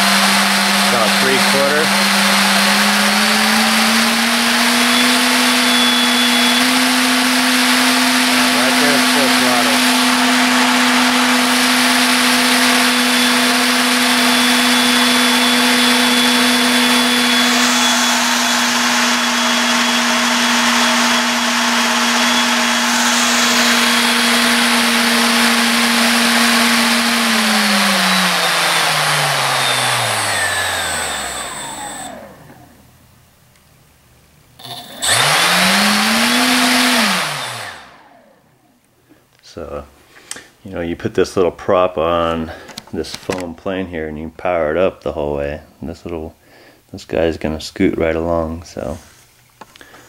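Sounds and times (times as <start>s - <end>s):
electric motor propeller whine: 0.0s - 32.8s, 34.6s - 38.6s.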